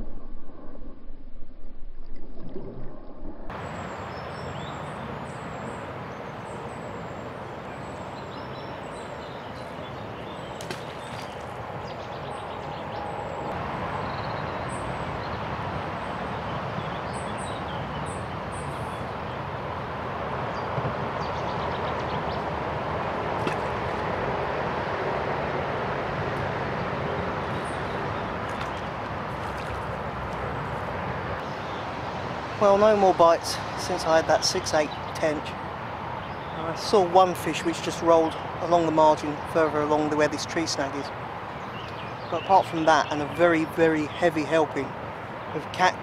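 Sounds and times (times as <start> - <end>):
muffled water sloshing underwater: 0.0 - 3.9, 27.4 - 31.4
road traffic noise: 3.5 - 46.0
small birds chirping: 27.3 - 46.0.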